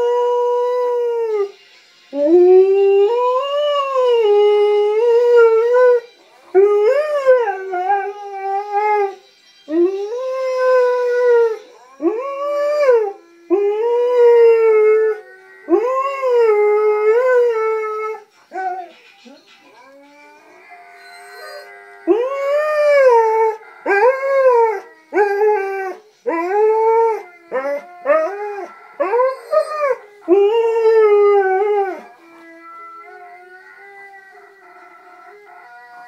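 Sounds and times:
dog howling: 20.1 - 36.0.

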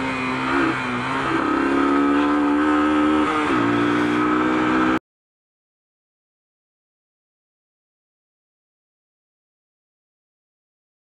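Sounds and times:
motorcycle engine running: 0.0 - 5.0.

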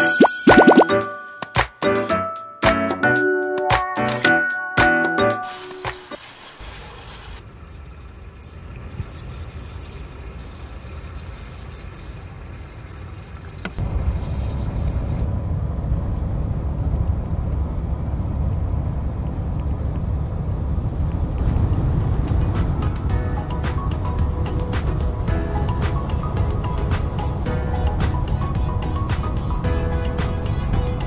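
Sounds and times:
engine and road rumble: 6.8 - 31.0.

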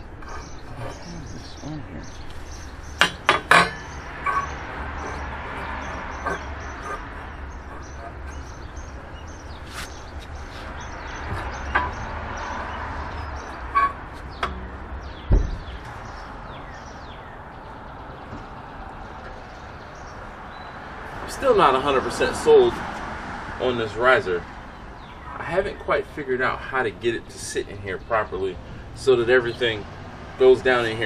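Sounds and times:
low thud: 14.4 - 16.0.

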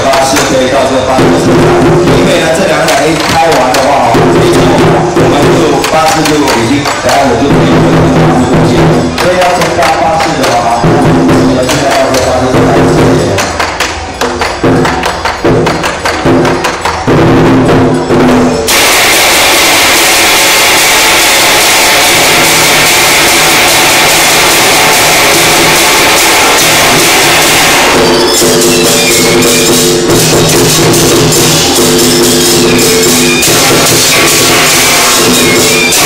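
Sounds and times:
temple drum cymbals and woodblock: 0.0 - 36.0
loud rushing noise: 17.2 - 36.0.

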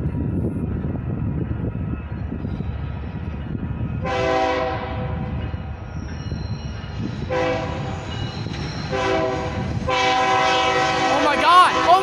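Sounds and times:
low rumble of train: 0.0 - 12.0
locomotive horn blasts: 4.0 - 5.1, 7.3 - 7.9, 8.9 - 12.0.

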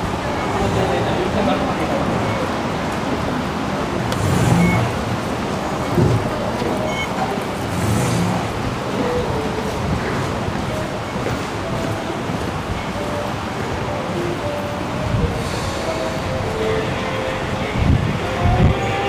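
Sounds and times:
busy metro station background noise: 0.0 - 19.0
fare gate electronic beeps: 4.1 - 5.1, 5.8 - 10.1.

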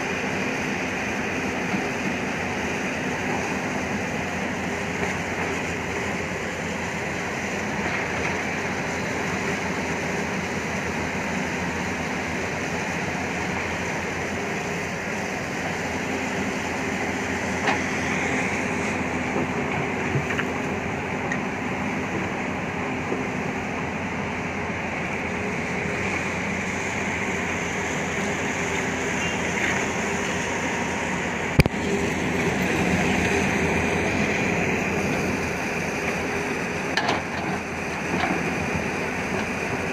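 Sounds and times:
excavator diesel engine running: 0.0 - 39.9
excavator digging in rock: 32.6 - 39.9.

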